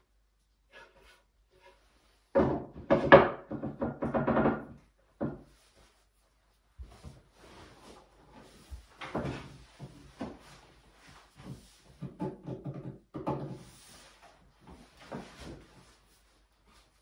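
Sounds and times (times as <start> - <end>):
wooden knocks and thumps: 2.3 - 5.6, 8.6 - 10.6, 11.4 - 13.8.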